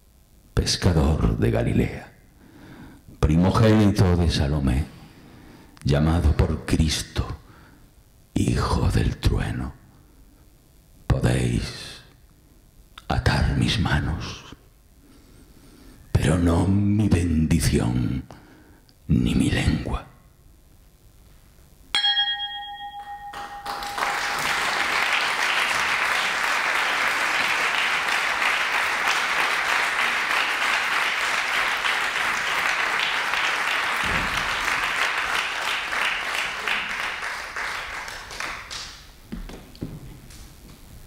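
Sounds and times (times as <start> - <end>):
struck ringing tone: 21.9 - 24.3
audience applause: 23.3 - 39.0.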